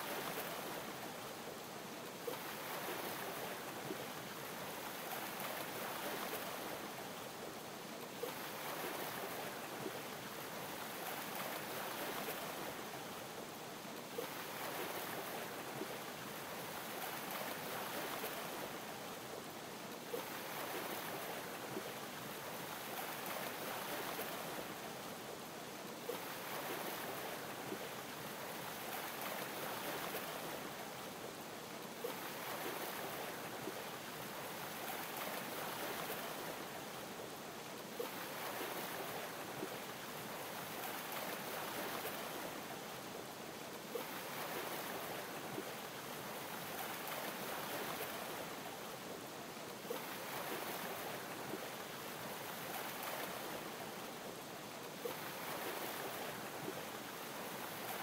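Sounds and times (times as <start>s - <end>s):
ocean waves lapping: 2.2s - 7.0s, 8.2s - 9.9s, 14.1s - 18.9s, 20.1s - 24.9s, 26.0s - 31.1s, 32.0s - 37.0s, 37.8s - 42.9s, 43.8s - 48.9s, 49.8s - 54.4s, 55.0s - 58.0s.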